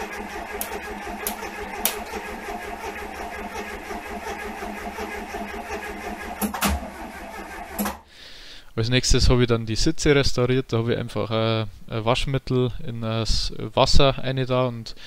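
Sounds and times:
engine cranking without starting: 0.0 - 8.1.

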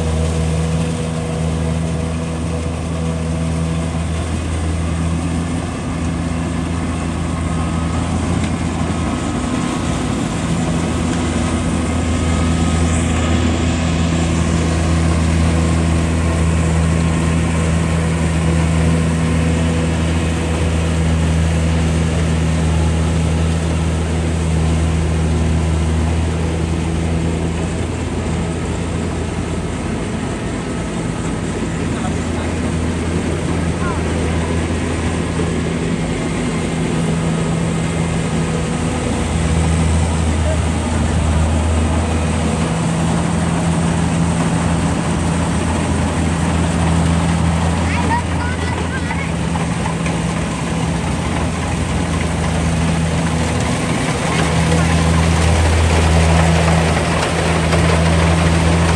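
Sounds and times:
combine harvester engine humming: 0.0 - 58.9.

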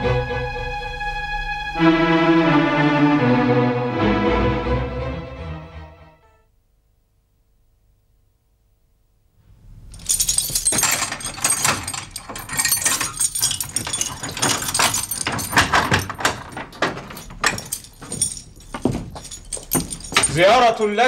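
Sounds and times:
metal keys jangling: 10.0 - 21.0.

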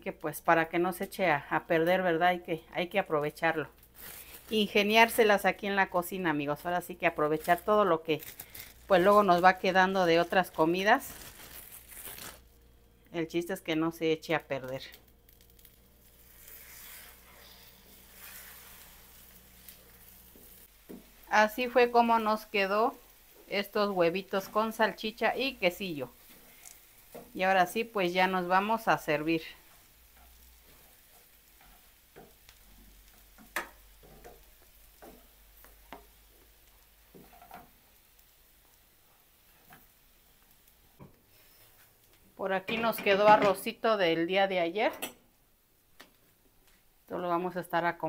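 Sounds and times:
eggs and sausage sizzling in pan: 0.0 - 44.4
spatula scraping pan: 16.2 - 20.6.

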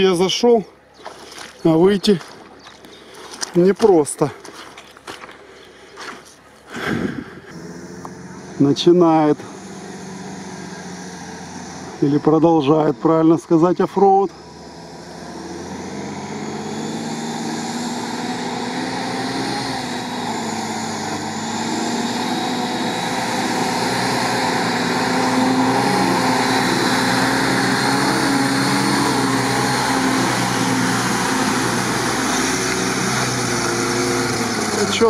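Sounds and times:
off-road vehicle engine revving: 6.8 - 35.0.

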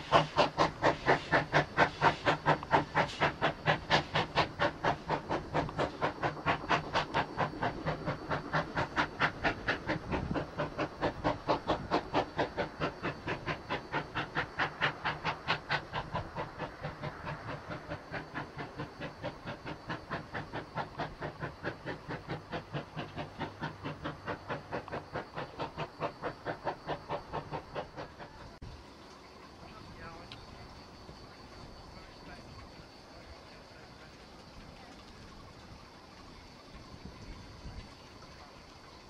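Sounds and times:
steam locomotive chuffing: 0.0 - 28.9.

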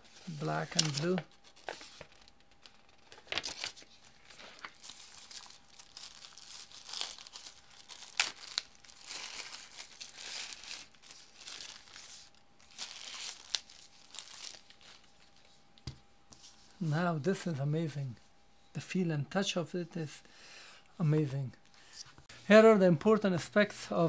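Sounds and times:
plastic bag and paper crinkling: 0.0 - 15.5.

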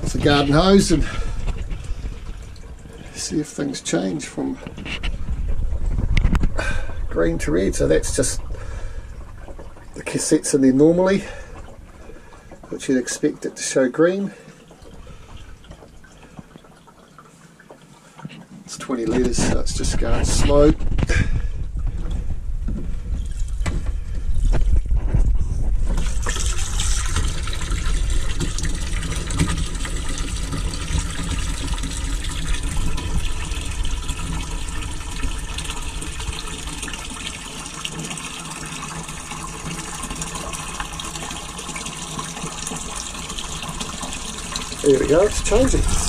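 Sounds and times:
hose water running into tank: 0.0 - 46.0
low rumble: 4.5 - 10.7, 19.4 - 27.1, 45.2 - 46.0.

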